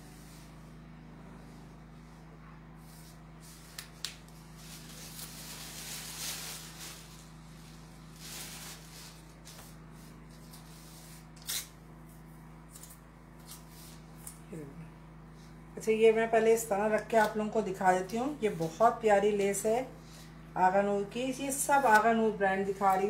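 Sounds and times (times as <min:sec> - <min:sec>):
steady low hum: 0:00.0 - 0:23.0
cloth rustling: 0:02.9 - 0:11.0.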